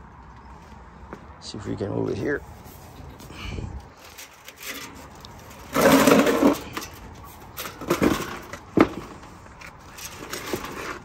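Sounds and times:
metal unit scraping grind: 3.9s - 11.0s.

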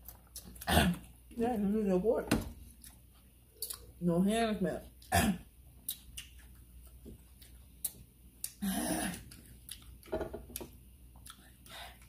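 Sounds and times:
people chewing noodles: 5.8s - 10.1s, 11.1s - 12.0s.

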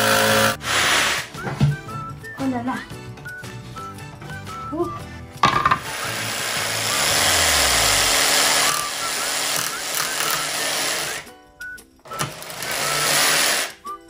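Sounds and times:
jigsaw cutting wood: 0.0s - 1.3s, 5.8s - 11.3s, 12.1s - 13.8s
background music: 0.0s - 14.0s.

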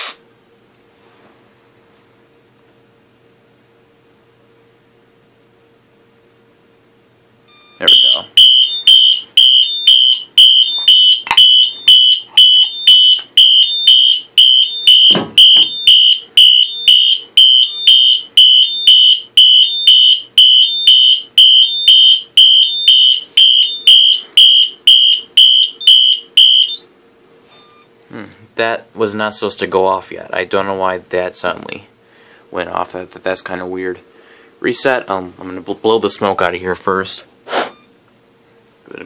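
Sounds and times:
fire alarm horn pulsing: 7.6s - 26.8s.

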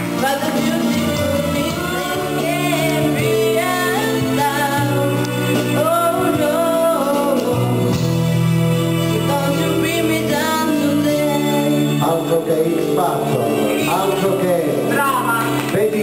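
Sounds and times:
woman singing into microphone: 0.0s - 12.1s
recorded backing music: 0.0s - 16.0s.

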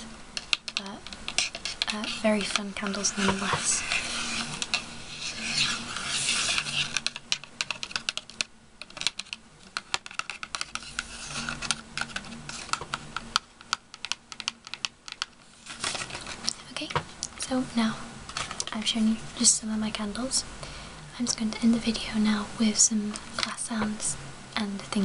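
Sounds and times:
scratching and rubbing on cardboard: 0.7s - 8.1s, 9.9s - 12.9s.

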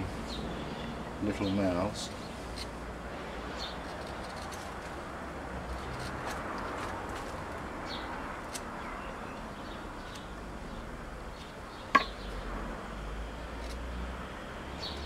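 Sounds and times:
steady background hiss: 0.0s - 5.7s.

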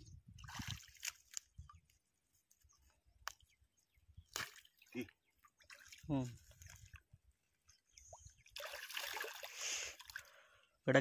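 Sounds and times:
small water splashes and drips: 0.3s - 2.0s, 4.2s - 10.6s.

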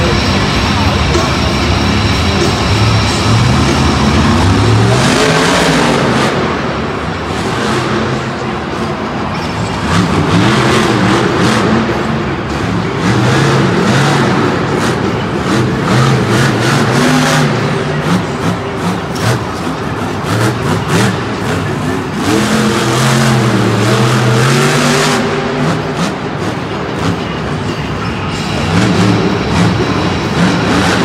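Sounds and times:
loud music: 0.0s - 8.5s
truck engine revving: 0.0s - 31.0s.

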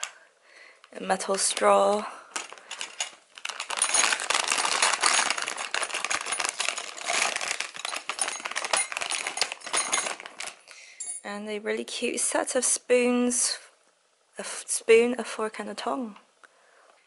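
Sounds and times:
plastic bag crinkling: 1.1s - 10.7s
metal cutlery clinking: 2.4s - 11.2s.

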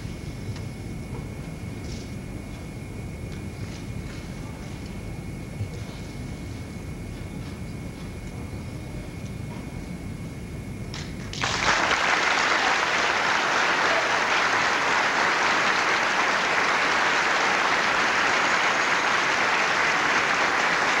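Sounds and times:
audience applause: 11.3s - 21.0s.

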